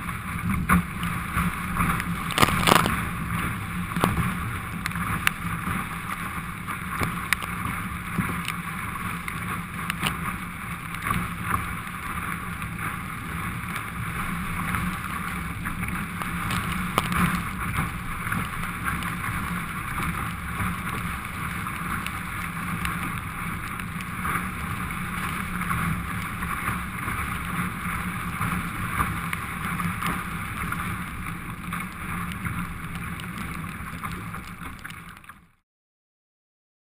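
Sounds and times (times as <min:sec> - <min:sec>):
rushing water and wind: 0:00.0 - 0:35.5
small ticks: 0:02.0 - 0:03.0, 0:15.8 - 0:17.4.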